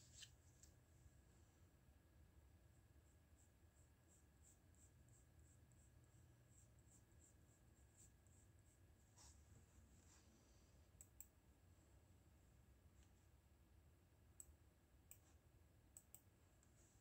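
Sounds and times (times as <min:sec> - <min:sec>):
pencil scratching on paper: 0:03.3 - 0:09.4.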